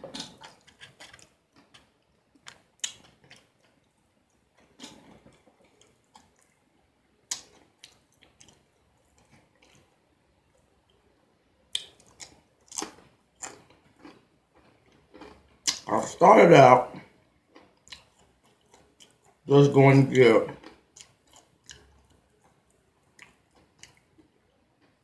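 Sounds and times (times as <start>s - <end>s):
person chewing crunchy food: 0.1s - 6.6s, 7.2s - 10.0s, 11.7s - 15.9s, 17.5s - 19.4s, 20.6s - 25.0s.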